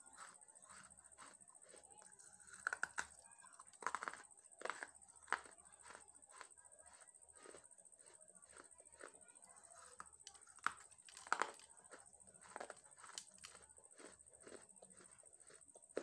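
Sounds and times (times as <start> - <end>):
chewing dry clay crunches: 0.0 - 16.0.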